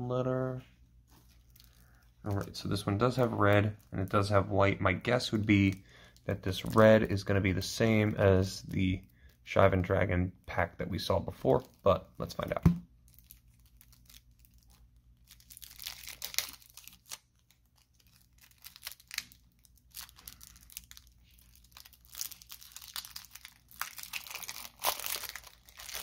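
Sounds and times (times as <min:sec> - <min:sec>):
plastic wrap crinkling and tearing: 0:01.1 - 0:10.0, 0:10.8 - 0:26.0.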